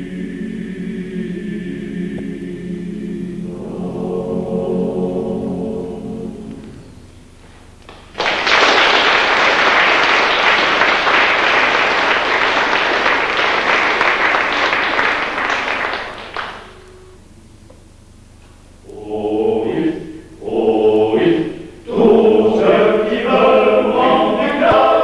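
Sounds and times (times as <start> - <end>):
male choir singing: 0.0 - 6.8, 18.8 - 25.0
audience applauding: 7.9 - 16.8.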